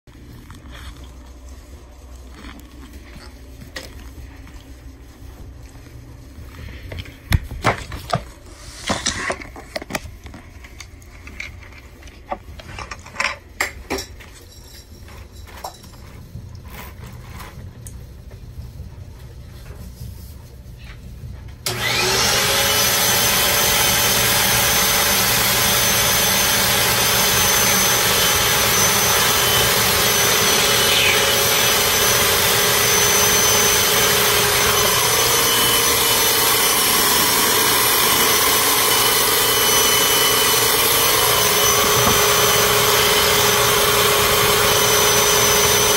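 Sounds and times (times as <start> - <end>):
vacuum cleaner running: 21.6 - 45.9.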